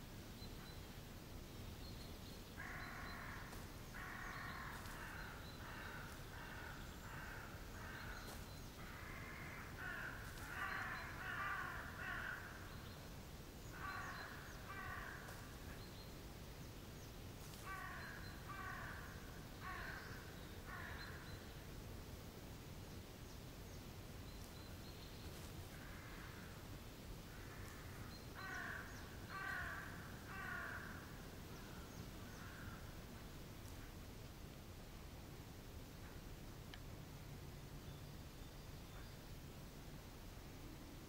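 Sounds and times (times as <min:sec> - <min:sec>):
crows cawing: 0:02.6 - 0:12.7, 0:13.7 - 0:15.5, 0:17.6 - 0:21.3, 0:25.7 - 0:26.6, 0:27.3 - 0:32.9.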